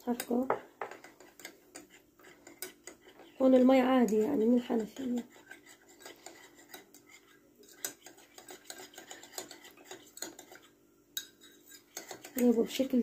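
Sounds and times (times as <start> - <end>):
teaspoon stirring in ceramic cup: 0.1 - 13.0.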